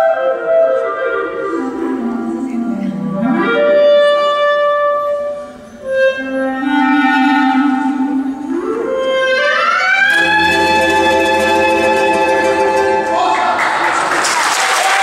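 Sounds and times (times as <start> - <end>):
clarinet playing: 0.0 - 13.5
acoustic guitar accompaniment: 9.4 - 13.4.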